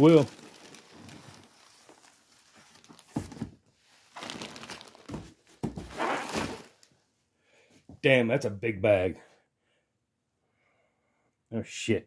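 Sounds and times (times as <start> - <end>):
bubble wrap crinkling: 0.0 - 6.9.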